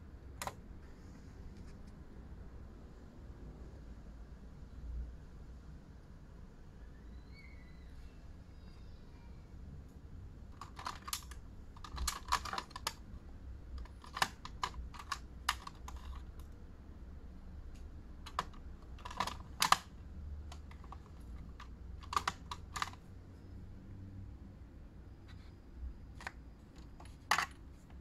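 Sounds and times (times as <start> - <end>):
makeup tubes clicking on acrylic: 10.6 - 13.0, 13.7 - 16.6, 17.7 - 23.0, 26.2 - 28.0.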